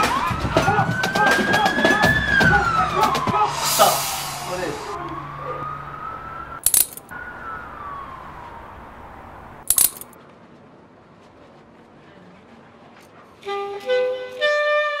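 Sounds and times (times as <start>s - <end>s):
police siren wailing: 0.0s - 9.6s.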